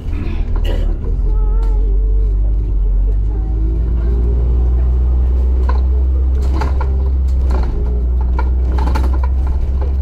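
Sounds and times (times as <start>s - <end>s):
bus engine drone: 0.0s - 10.0s
bodywork rattling and clicking: 5.4s - 10.0s.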